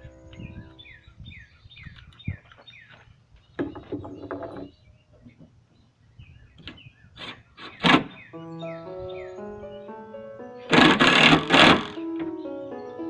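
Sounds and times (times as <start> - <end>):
birds chirping: 0.0 - 13.0
background music: 8.3 - 13.0
drill buzzing: 10.7 - 12.0
drill handling and knocking on wood: 10.7 - 12.3.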